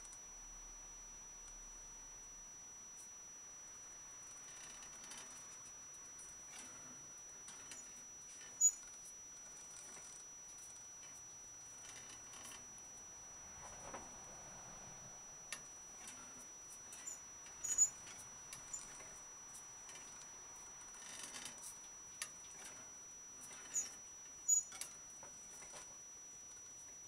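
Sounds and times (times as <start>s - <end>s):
wire exercise wheel turning: 4.4s - 5.6s, 7.5s - 12.7s, 15.5s - 19.2s, 19.8s - 25.9s.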